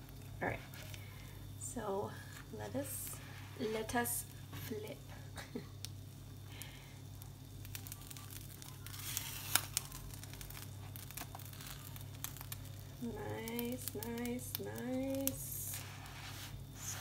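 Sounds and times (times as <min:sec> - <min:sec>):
spatula scraping rustle: 0:02.3 - 0:04.6, 0:08.8 - 0:12.5, 0:15.3 - 0:17.0.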